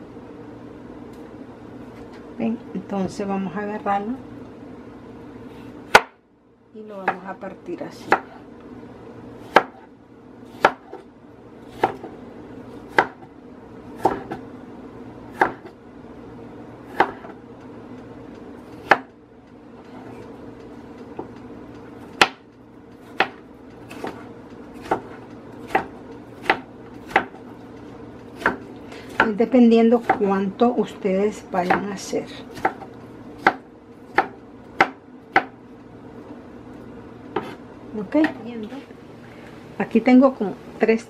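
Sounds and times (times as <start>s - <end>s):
low steady hum: 0.0s - 41.0s
knife chopping on wooden board: 5.9s - 6.2s, 8.0s - 8.4s, 9.4s - 9.9s, 10.5s - 11.0s, 11.7s - 12.2s, 12.8s - 13.3s, 14.0s - 14.4s, 15.3s - 15.7s, 16.9s - 17.4s, 18.8s - 19.1s, 22.0s - 27.5s, 28.2s - 30.4s, 31.6s - 35.6s, 37.3s - 37.6s.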